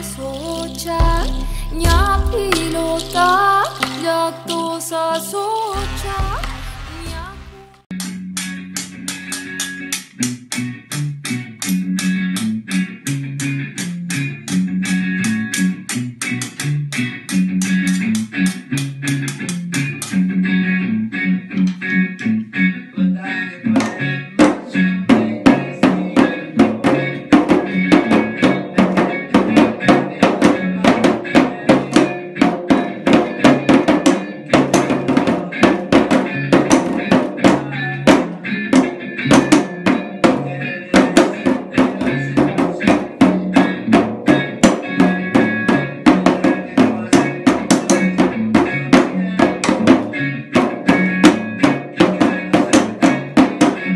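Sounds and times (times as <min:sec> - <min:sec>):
song with guitar: 0:00.0 - 0:53.9
sticks beating a drum: 0:23.8 - 0:40.4, 0:41.0 - 0:53.9.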